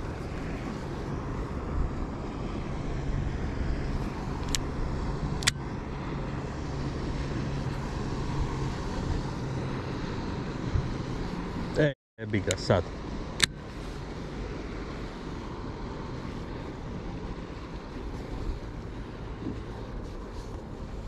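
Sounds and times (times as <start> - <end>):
wind noise: 0.0 - 11.8
boat engine humming: 0.0 - 21.0.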